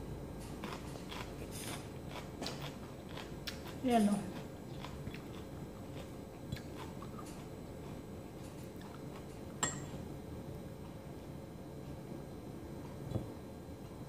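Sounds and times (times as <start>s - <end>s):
chewing: 0.4s - 9.4s.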